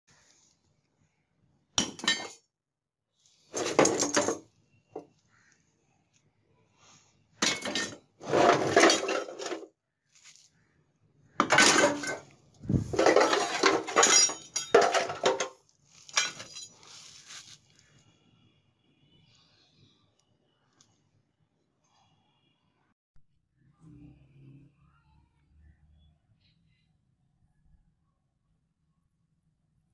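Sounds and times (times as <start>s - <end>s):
scrap metal clanking and scraping: 3.5s - 4.4s, 7.4s - 9.6s, 11.4s - 16.9s.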